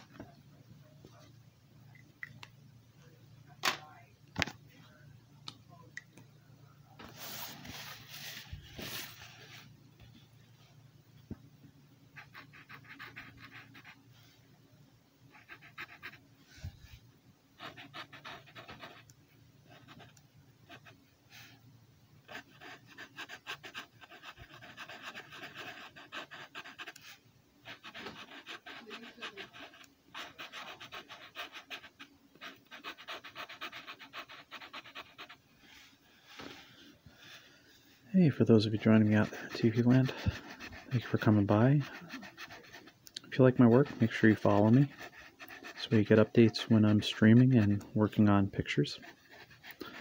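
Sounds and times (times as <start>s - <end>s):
marker scratching on paper: 12.2s - 14.0s, 15.3s - 16.2s, 17.6s - 19.1s, 19.7s - 21.0s, 22.3s - 35.4s, 38.6s - 50.0s.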